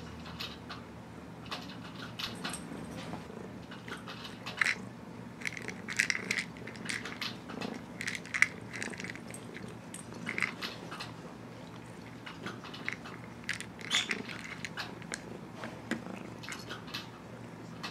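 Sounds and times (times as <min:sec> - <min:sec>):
cat treats rattling in plastic toy: 0:03.9 - 0:04.8, 0:05.4 - 0:11.1, 0:12.0 - 0:15.3, 0:16.0 - 0:17.0.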